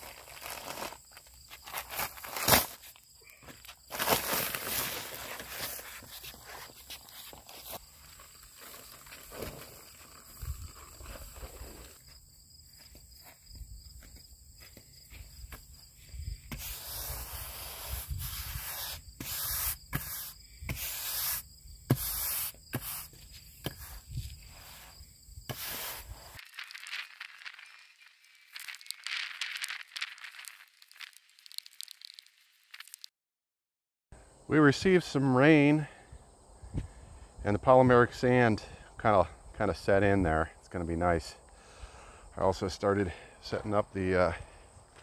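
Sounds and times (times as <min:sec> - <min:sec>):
sand pouring from a bag: 0:03.9 - 0:12.0, 0:16.5 - 0:33.1
push broom sweeping: 0:16.5 - 0:24.9, 0:25.5 - 0:26.4.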